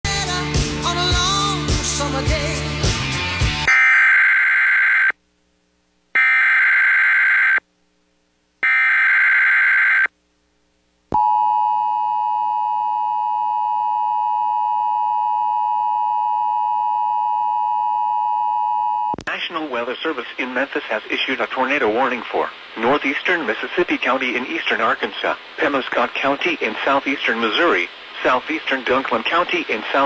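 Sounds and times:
steady alarm tone: 0:03.7 - 0:05.1, 0:06.2 - 0:07.6, 0:08.6 - 0:10.1.

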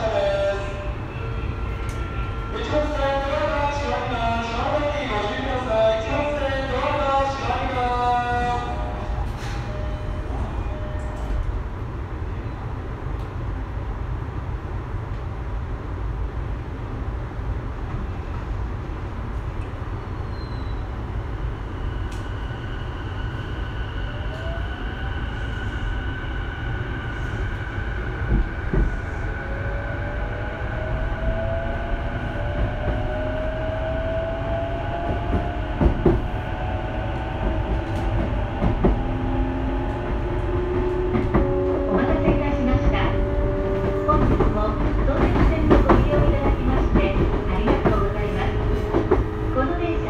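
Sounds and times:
train rumble: 0:00.0 - 0:50.0
wheels clacking on rails: 0:37.2 - 0:50.0.

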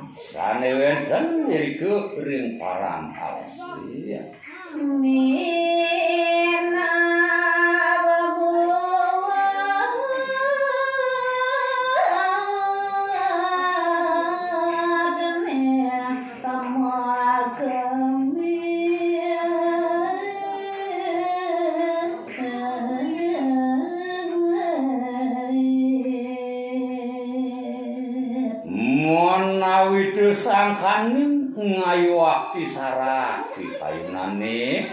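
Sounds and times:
woman singing unaccompanied: 0:04.5 - 0:28.7.

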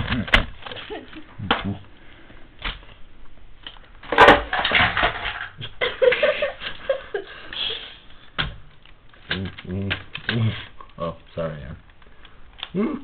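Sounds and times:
toys crashing: 0:04.0 - 0:05.7.

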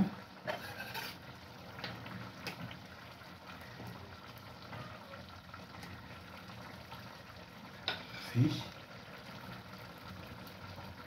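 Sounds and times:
plates and utensils clinking: 0:00.5 - 0:01.2.

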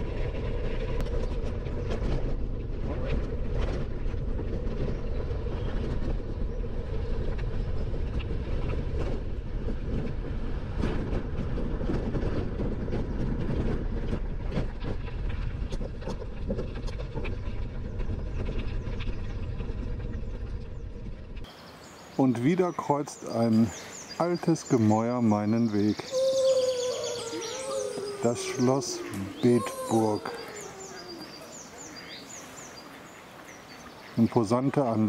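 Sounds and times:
bicycle tyres rolling: 0:00.0 - 0:22.2.

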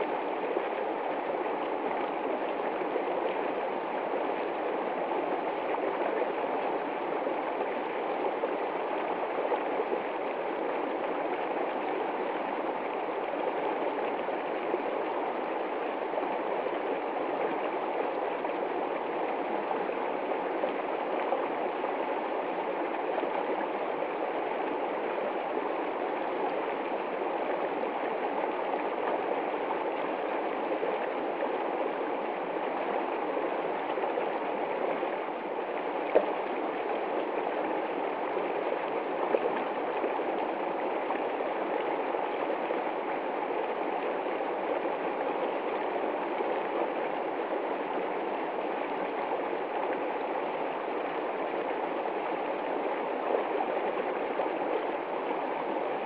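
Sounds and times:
creek water splashing over rocks: 0:00.0 - 0:56.0.

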